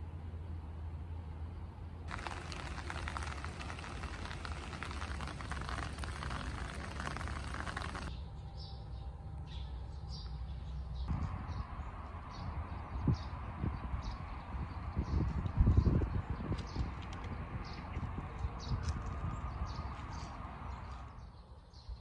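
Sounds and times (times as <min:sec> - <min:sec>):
crackly hiss: 0:02.1 - 0:08.1.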